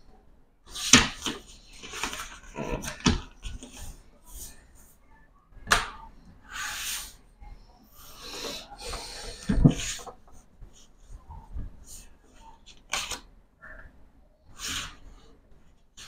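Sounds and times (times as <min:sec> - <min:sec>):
paper rustling: 0:00.7 - 0:04.0.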